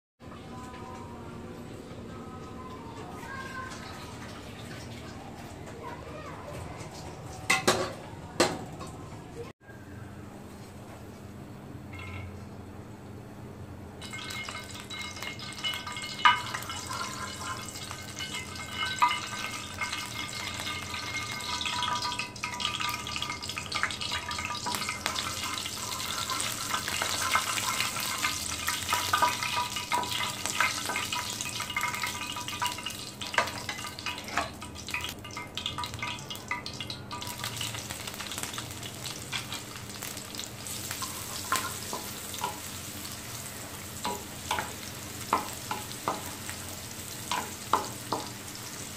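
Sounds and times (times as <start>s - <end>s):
oil sizzling in a frying pan: 14.0s - 48.9s
spoon tapping and scraping pan: 40.8s - 42.8s, 44.0s - 46.5s, 47.2s - 48.4s.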